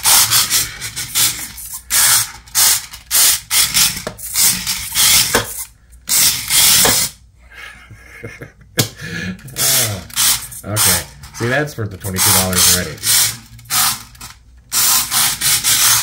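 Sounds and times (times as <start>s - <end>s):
small electric motor whirring: 0.0s - 7.2s, 9.6s - 11.1s, 12.2s - 16.0s.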